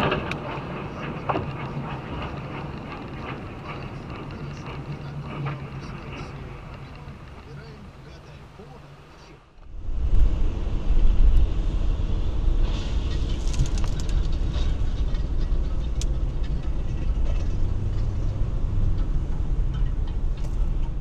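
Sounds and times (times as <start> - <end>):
sharp clicks and knocks: 0.0 - 8.0
car road noise rumble: 0.0 - 21.0.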